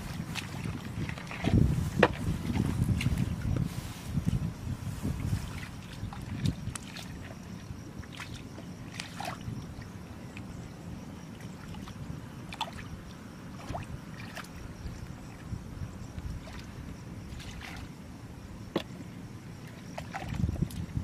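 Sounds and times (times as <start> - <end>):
steady low rumble: 0.0 - 8.1
muddy water sloshing: 0.0 - 21.0.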